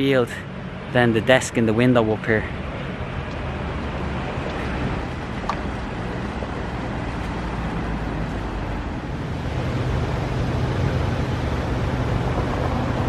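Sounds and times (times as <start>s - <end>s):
low traffic rumble: 0.0s - 13.0s.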